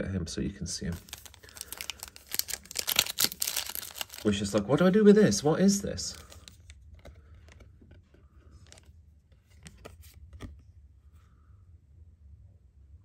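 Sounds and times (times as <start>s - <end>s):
card and foil wrapper rustling: 0.8s - 4.9s, 5.9s - 7.7s.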